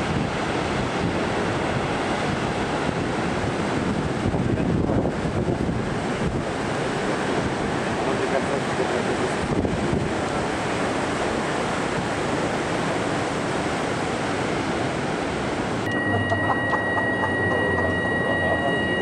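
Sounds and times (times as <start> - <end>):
high-pitched machinery whine: 15.9 - 19.0.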